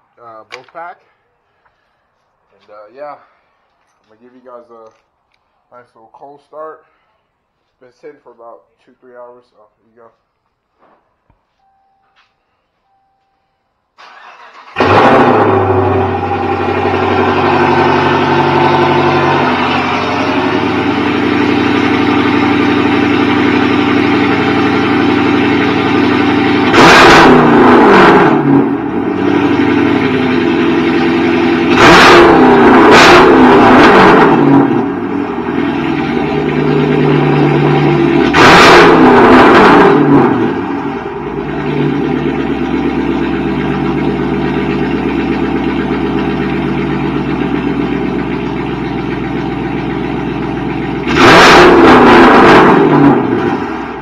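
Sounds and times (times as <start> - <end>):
car engine idling and revving: 14.0 - 54.0.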